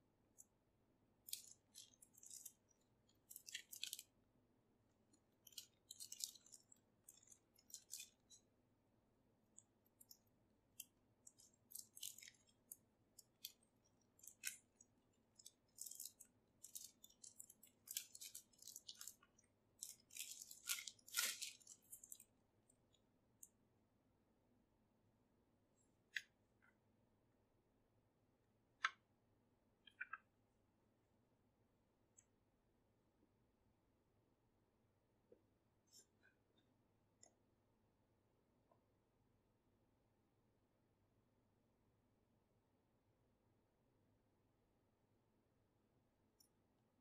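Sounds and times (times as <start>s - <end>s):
plastic shrink-wrap crinkling: 1.2s - 4.1s, 5.4s - 8.4s, 10.8s - 22.3s.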